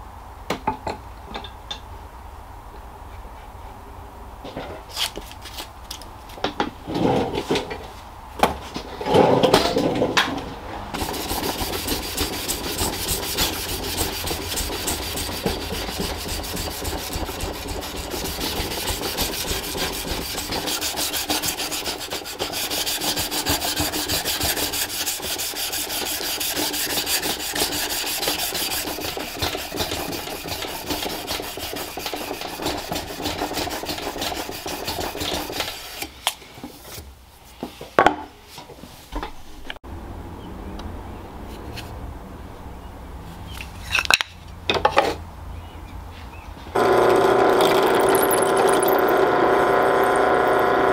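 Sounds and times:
scissors cutting sandpaper: 0:11.0 - 0:35.8
sandpaper rubbing on steel blade: 0:11.0 - 0:36.0.

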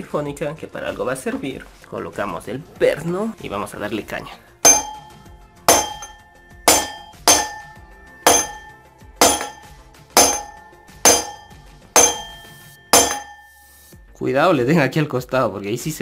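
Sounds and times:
hammer ringing on steel bolt: 0:04.7 - 0:13.6.

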